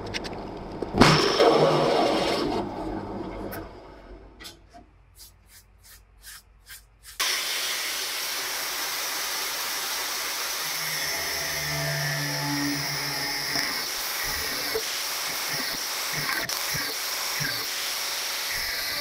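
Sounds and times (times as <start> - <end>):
brush sweeping metal chips: 5.1 - 7.4
angle grinder cutting steel: 7.2 - 19.0.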